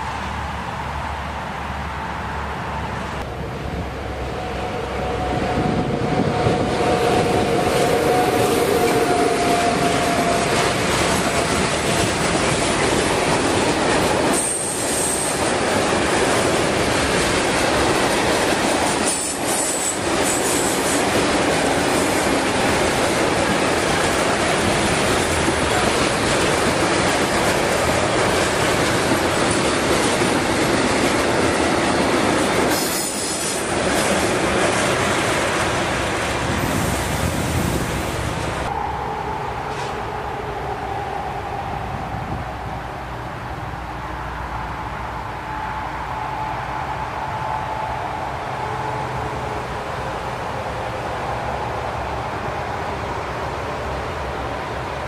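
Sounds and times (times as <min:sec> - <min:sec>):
freight train rumbling past: 0:00.0 - 0:55.0
train wheel squeals: 0:13.6 - 0:15.6, 0:18.8 - 0:22.4, 0:32.7 - 0:34.2.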